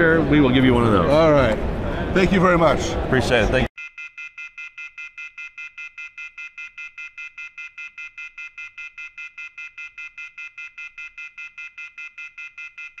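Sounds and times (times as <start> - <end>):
rapid high electronic beeps: 3.8 - 13.0.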